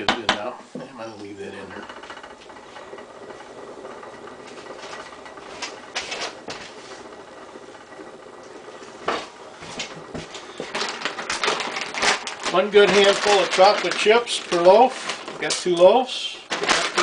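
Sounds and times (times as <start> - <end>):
low background hum: 0.0 - 17.0
kitchen items clattering: 8.6 - 17.0.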